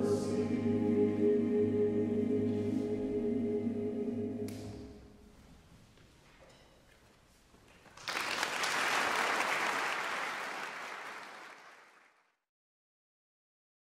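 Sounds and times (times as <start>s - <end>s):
audience applause: 7.8s - 12.3s.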